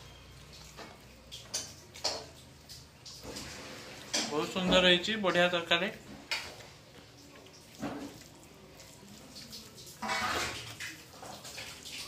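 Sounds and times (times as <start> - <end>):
person chewing food: 6.3 - 12.0.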